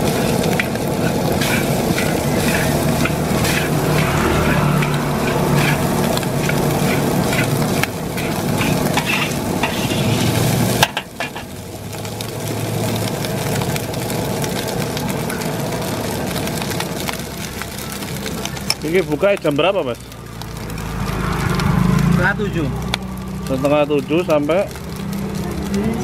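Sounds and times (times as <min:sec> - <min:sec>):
spatula scraping a wok: 0:00.0 - 0:11.5
rice sizzling in a wok: 0:00.0 - 0:26.0.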